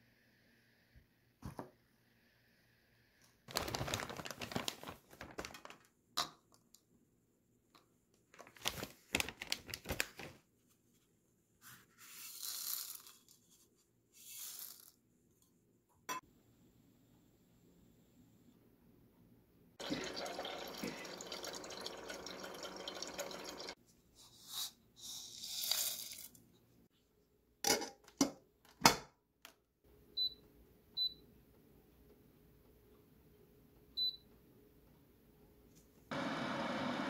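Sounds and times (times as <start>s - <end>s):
water pouring: 19.8s - 23.8s.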